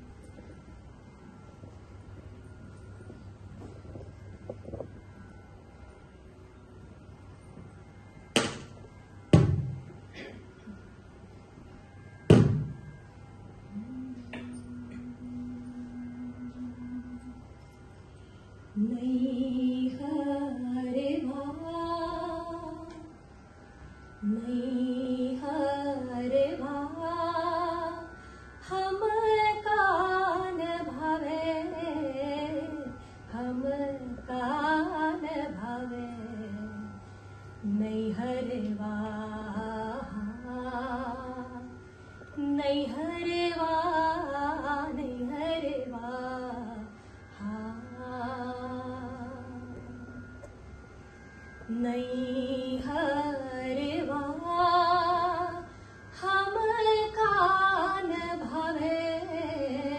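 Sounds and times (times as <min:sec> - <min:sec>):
woman singing into a microphone: 0:18.8 - 0:23.1, 0:24.2 - 0:37.0, 0:37.6 - 0:41.8, 0:42.4 - 0:50.1, 0:51.7 - 0:59.9.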